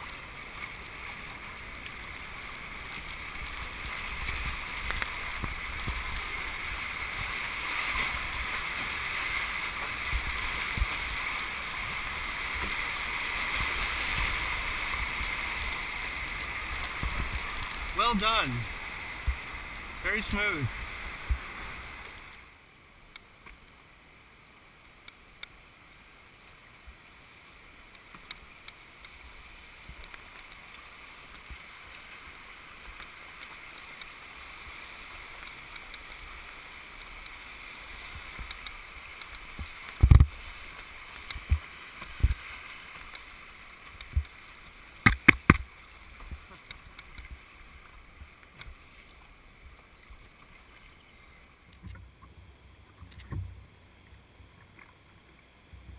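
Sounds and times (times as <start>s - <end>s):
whitewater rushing: 0.0s - 22.4s
canoe thumps and knocks: 45.0s - 45.7s.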